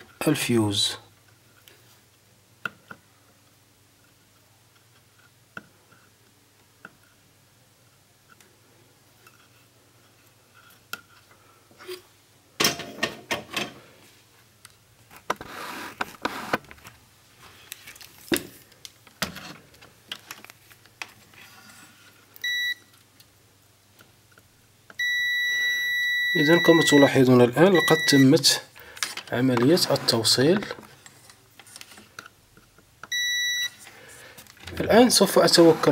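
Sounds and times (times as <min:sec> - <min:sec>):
short high multimeter beep: 0:22.4 - 0:22.8, 0:25.0 - 0:27.1, 0:27.7 - 0:28.3, 0:33.1 - 0:33.8.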